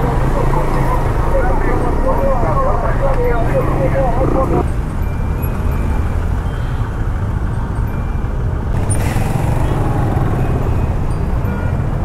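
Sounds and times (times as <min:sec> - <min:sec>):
rumble of vehicle engines: 0:00.0 - 0:12.0
motorcycle engine running: 0:08.8 - 0:11.7.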